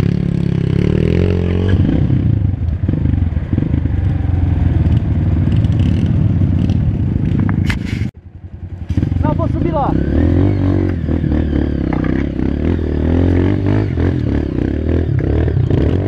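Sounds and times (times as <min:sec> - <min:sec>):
motorcycle engine running: 0:00.0 - 0:16.0
bike clattering: 0:11.8 - 0:12.4.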